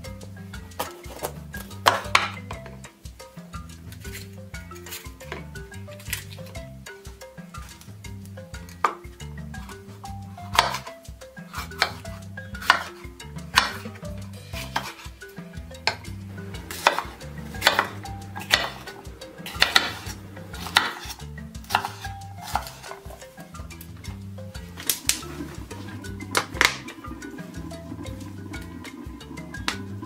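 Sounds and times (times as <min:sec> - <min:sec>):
background music: 0:00.0 - 0:30.0
knife chopping on wooden board: 0:10.6 - 0:10.9, 0:11.5 - 0:13.0, 0:13.6 - 0:13.8, 0:14.6 - 0:15.0, 0:16.7 - 0:22.9.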